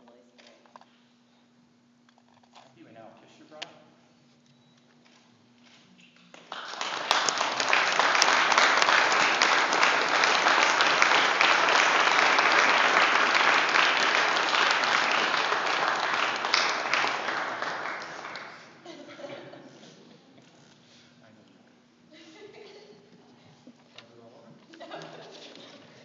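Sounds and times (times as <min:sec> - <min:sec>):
guests applauding: 0:06.2 - 0:18.8.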